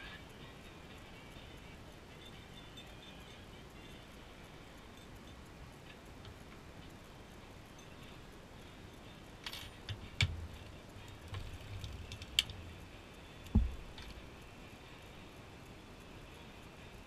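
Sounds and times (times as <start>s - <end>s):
metallic clicks and knocks: 9.4s - 14.3s.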